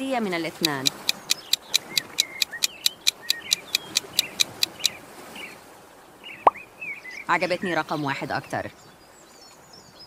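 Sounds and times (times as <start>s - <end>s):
small birds chirping: 0.3s - 5.6s
timer ticking rapidly: 0.5s - 4.9s.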